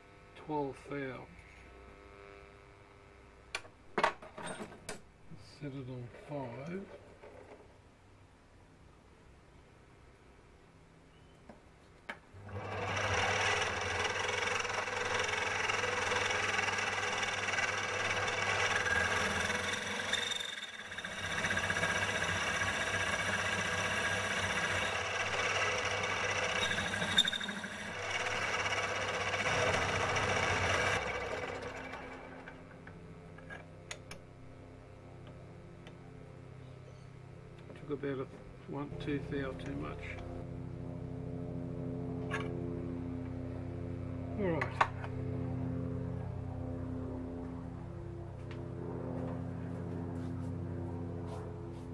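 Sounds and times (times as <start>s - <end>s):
metal lathe motor whine: 12.4s - 32.8s.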